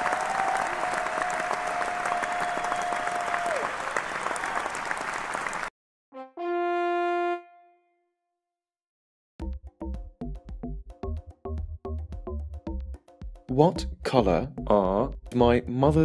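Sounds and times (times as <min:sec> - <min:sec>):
applause and cheering: 0:00.0 - 0:05.7
brass stinger: 0:06.1 - 0:08.1.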